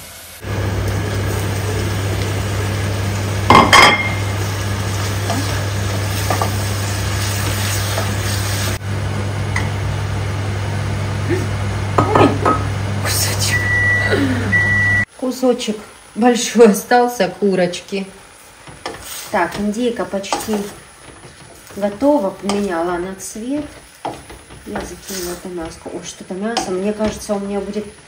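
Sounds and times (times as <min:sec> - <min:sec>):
meat sizzling in a pot: 0:00.0 - 0:28.0
wooden spoon stirring in a pot: 0:04.6 - 0:08.8, 0:18.4 - 0:28.0.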